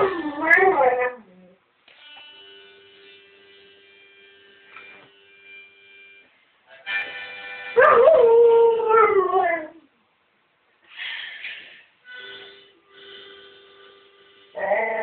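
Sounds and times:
harmonica playing chords: 2.0 - 8.1, 12.0 - 15.0
dog howling: 14.6 - 15.0.

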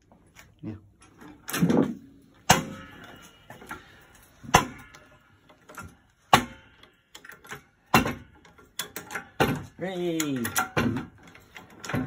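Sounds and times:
hammer striking wood block: 2.5 - 3.0, 4.4 - 4.9, 6.3 - 6.6.

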